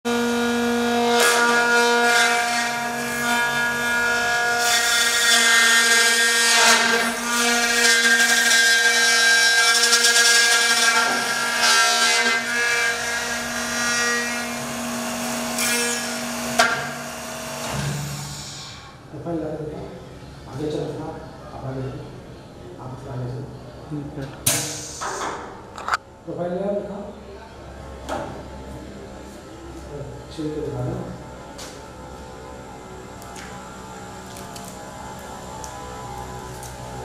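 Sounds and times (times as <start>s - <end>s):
motor whining: 31.7s - 37.0s.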